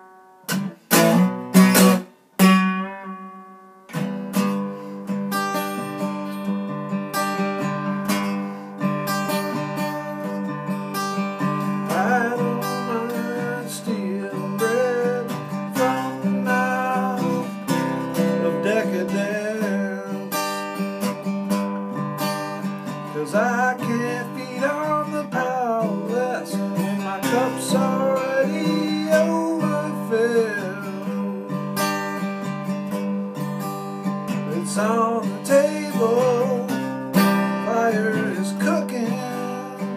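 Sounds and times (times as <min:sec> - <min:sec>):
acoustic guitar strummed: 0:00.0 - 0:39.9
man singing: 0:09.2 - 0:10.8, 0:11.4 - 0:20.8, 0:22.4 - 0:31.9, 0:34.3 - 0:39.9.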